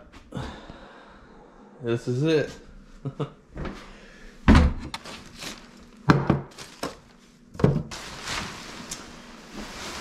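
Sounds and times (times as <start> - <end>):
rustling handling noise: 4.9 - 10.0.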